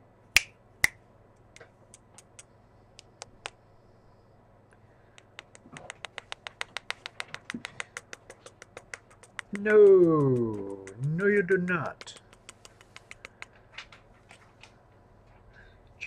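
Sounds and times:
loud clicks: 5.1s - 13.6s.

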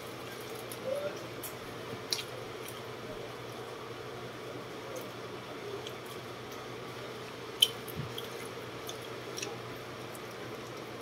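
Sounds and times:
steady low hum: 0.0s - 11.0s
wet chewing sounds: 1.4s - 2.9s, 5.8s - 11.0s.

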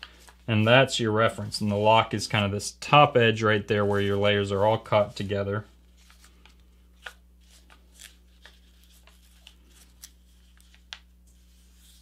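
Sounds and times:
paper crackling and rustling: 3.7s - 12.0s.

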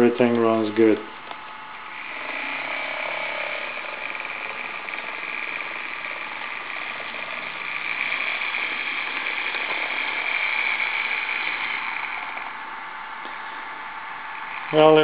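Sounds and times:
model locomotive motor whining: 0.0s - 15.0s.

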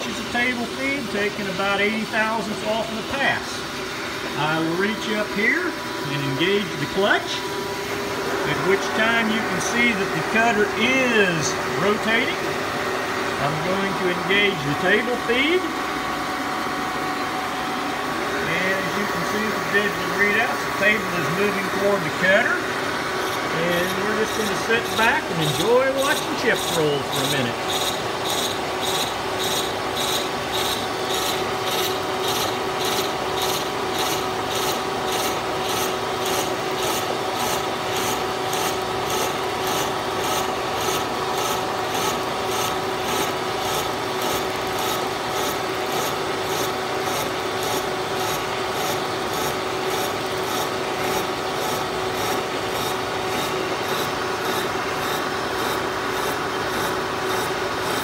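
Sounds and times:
machine humming: 0.0s - 58.0s
milling cutter rasping: 18.4s - 58.0s.

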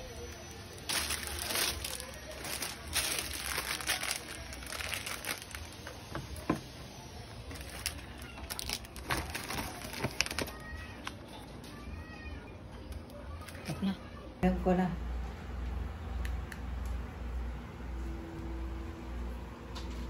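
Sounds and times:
plastic wrapping crinkling: 0.0s - 11.8s
cardboard packaging rustling: 0.3s - 6.6s, 7.4s - 11.2s.

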